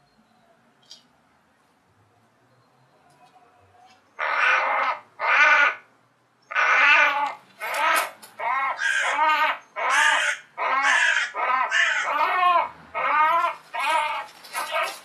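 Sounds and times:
crow harsh distress caws: 4.2 - 5.9, 6.5 - 15.0.

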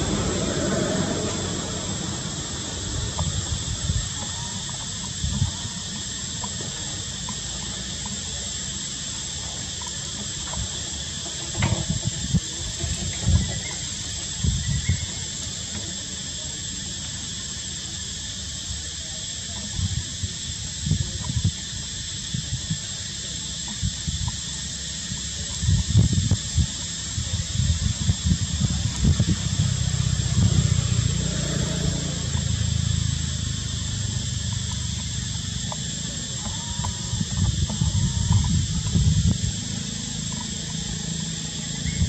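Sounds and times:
insect chorus: 0.0 - 42.0
low thumps and rumbles: 25.6 - 31.2, 32.2 - 42.0.

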